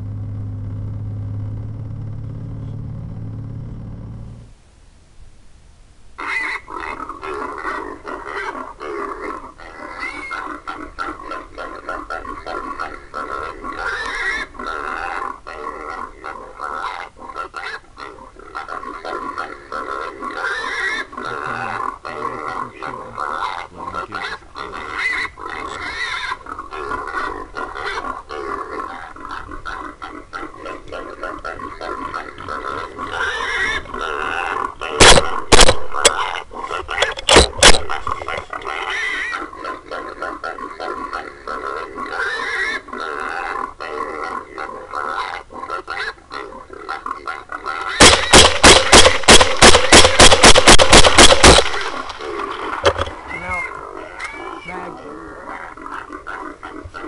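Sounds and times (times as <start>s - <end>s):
wild hogs squealing and grunting: 6.2s - 57.0s
hog call squealing: 9.7s - 16.0s, 16.8s - 40.2s, 47.8s - 57.0s.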